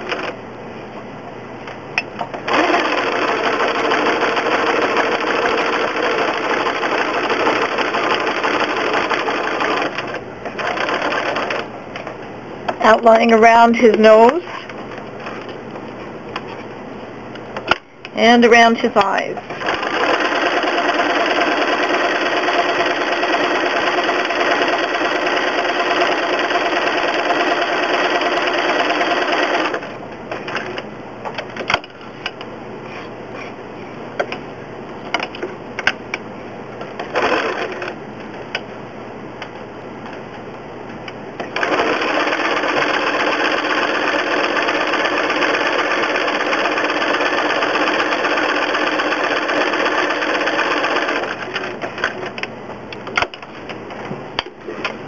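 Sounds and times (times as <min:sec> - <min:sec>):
sewing machine stitching: 0:02.5 - 0:11.6, 0:19.5 - 0:29.9, 0:41.4 - 0:52.2.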